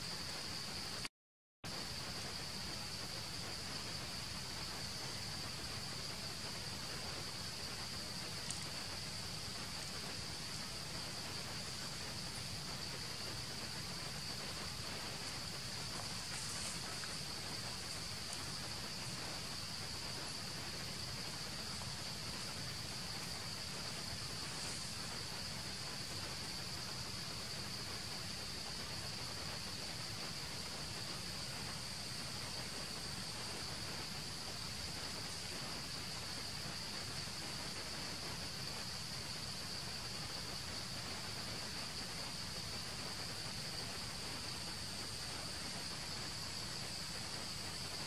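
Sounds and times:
insect chorus drone: 0.0s - 1.1s, 1.7s - 48.0s
constant hiss: 0.0s - 48.0s
faint clicks: 8.3s - 10.2s.

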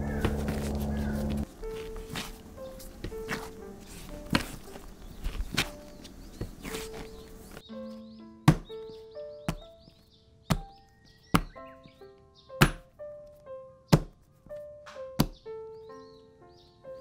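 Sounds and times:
gentle melodic music: 0.0s - 17.0s
dough thudding on mat: 0.2s - 7.6s, 8.4s - 8.8s, 11.3s - 11.6s, 12.6s - 12.9s, 13.9s - 14.2s, 15.2s - 15.4s.

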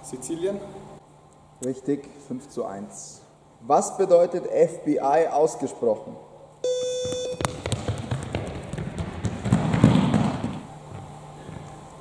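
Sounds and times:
electronic beep: 6.6s - 7.6s
footsteps on sports hall floor: 6.7s - 12.0s.

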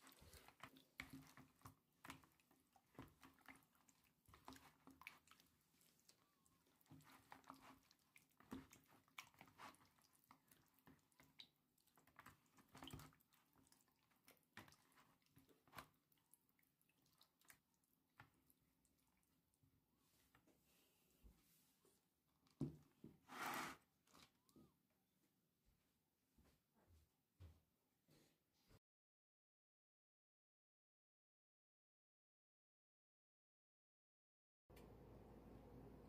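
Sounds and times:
hands squelching raw chicken: 0.0s - 19.2s.

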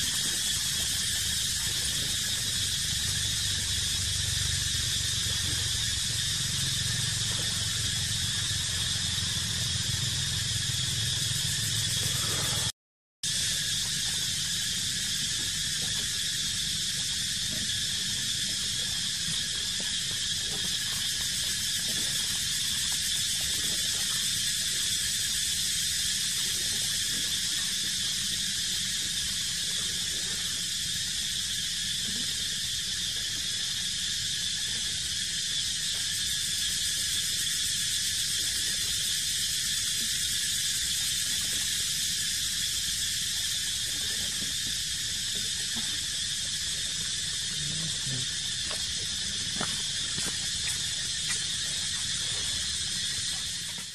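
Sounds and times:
insect chorus drone: 0.0s - 53.9s.

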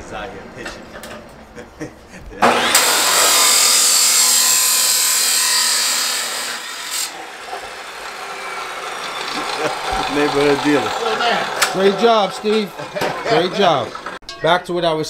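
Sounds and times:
power saw cutting metal: 2.4s - 14.2s.

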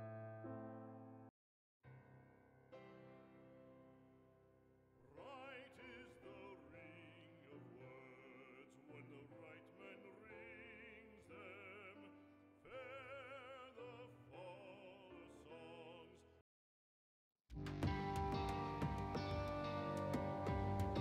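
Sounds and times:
operatic voice singing: 5.2s - 16.3s
instrumental accompaniment: 17.5s - 21.0s.

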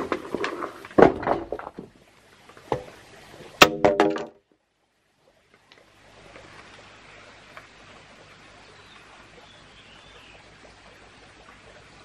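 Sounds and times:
bamboo pole scraping over dirt: 0.0s - 1.9s
hollow bamboo knocking and clattering: 0.0s - 4.6s
faint outdoor background: 0.0s - 12.0s.

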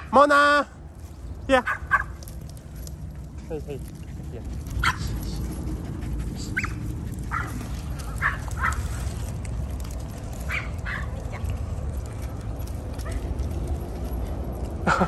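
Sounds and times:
dogs yipping: 1.6s - 9.4s, 10.3s - 11.6s, 12.7s - 13.7s.

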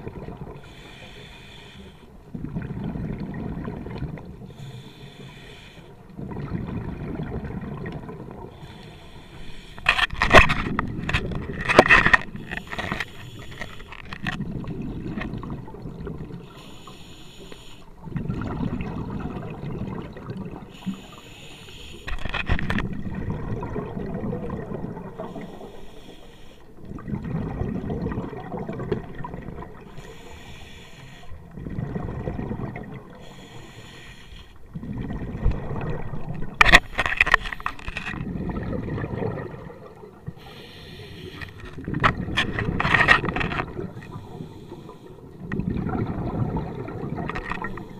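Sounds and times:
exhaled bubbles rumbling: 0.0s - 0.7s, 2.2s - 4.5s, 6.0s - 8.6s, 10.4s - 12.4s, 14.2s - 16.5s, 18.0s - 20.8s, 22.6s - 25.8s, 26.7s - 29.9s, 31.4s - 33.3s, 34.6s - 36.7s, 37.7s - 40.5s, 41.6s - 44.6s, 45.2s - 47.9s
regulator inhalation hiss: 0.6s - 2.1s, 4.5s - 5.9s, 8.6s - 9.8s, 12.5s - 13.9s, 16.4s - 17.9s, 20.7s - 22.1s, 25.2s - 26.7s, 29.9s - 31.4s, 33.2s - 34.6s, 40.4s - 41.6s.

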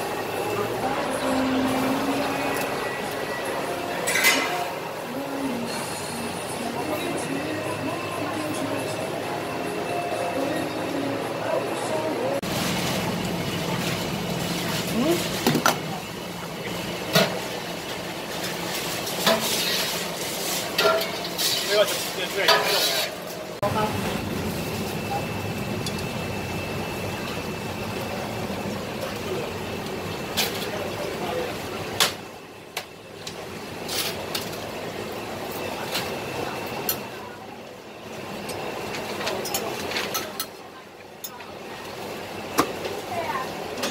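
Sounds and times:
crowd chatter: 0.0s - 12.5s, 34.0s - 43.9s
kitchen noise: 0.0s - 24.2s, 38.3s - 43.9s
utensils clinking on metal pot: 4.0s - 4.7s.

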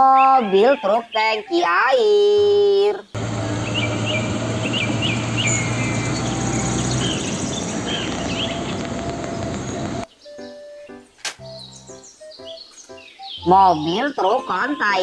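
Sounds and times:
birds chirping: 3.1s - 15.0s
truck diesel engine running: 3.2s - 10.0s
traffic noise: 3.2s - 10.1s.

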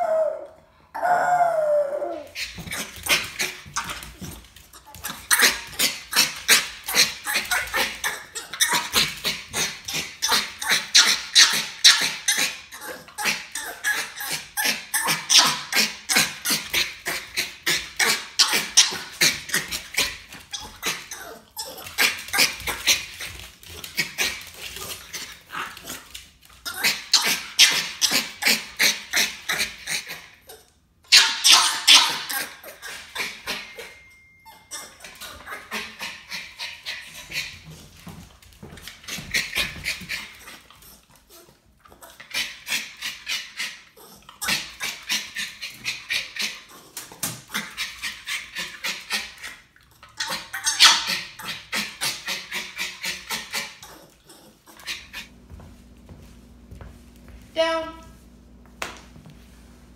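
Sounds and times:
dog howling: 0.0s - 2.4s.

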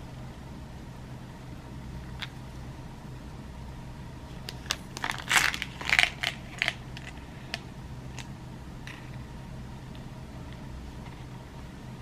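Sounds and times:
plastic blister pack crinkling: 4.5s - 7.6s.

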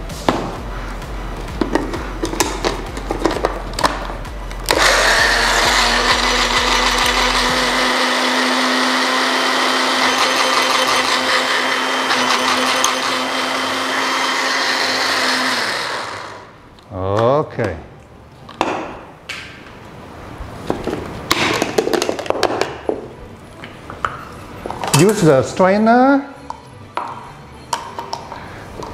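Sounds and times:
blender motor humming: 4.7s - 16.6s.

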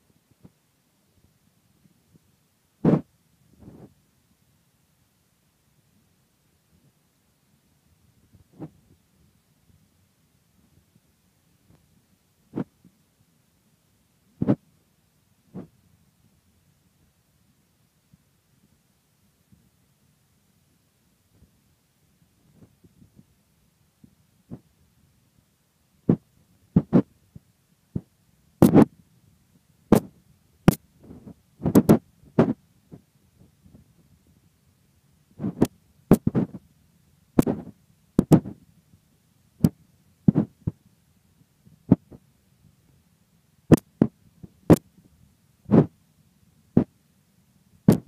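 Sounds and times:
faint low hum: 0.0s - 48.0s
dull thumps: 26.1s - 27.1s, 28.0s - 28.9s, 37.4s - 38.6s.

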